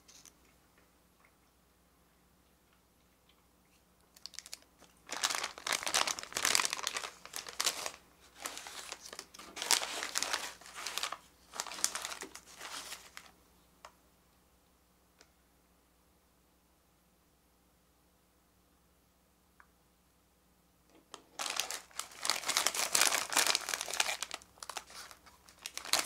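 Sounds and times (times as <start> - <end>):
plastic wrapper crinkling: 4.1 - 13.4, 21.1 - 26.0.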